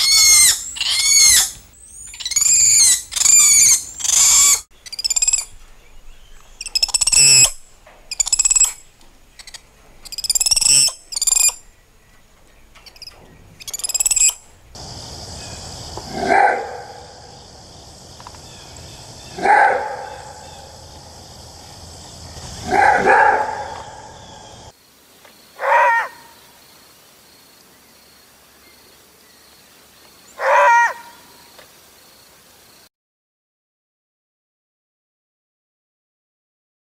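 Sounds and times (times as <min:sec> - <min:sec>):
monkey shrill call: 0:00.0 - 0:05.5, 0:06.6 - 0:08.8, 0:09.4 - 0:11.6, 0:12.9 - 0:14.4
steady high hiss: 0:00.0 - 0:25.6
wolf roar-barking: 0:16.0 - 0:17.5, 0:19.2 - 0:24.6, 0:30.4 - 0:31.1.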